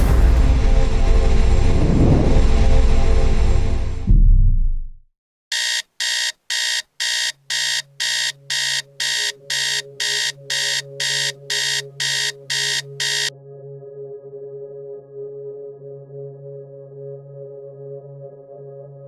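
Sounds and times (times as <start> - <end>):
alarm beeping: 5.5 - 13.3.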